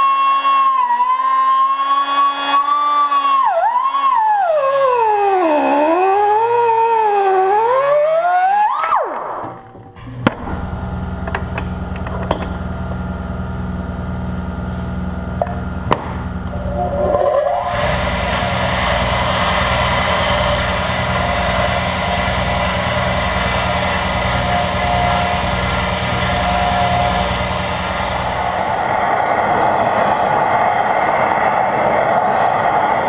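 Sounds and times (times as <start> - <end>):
bench grinder grinding metal: 0.0 - 8.6, 14.9 - 29.1
machine hum: 0.0 - 33.0.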